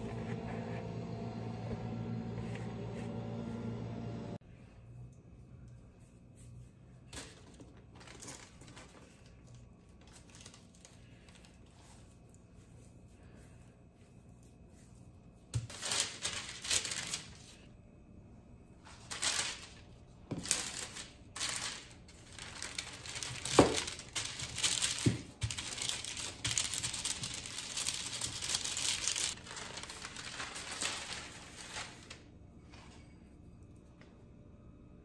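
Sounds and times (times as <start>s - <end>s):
parchment paper crinkling: 7.1s - 17.7s, 18.8s - 32.3s.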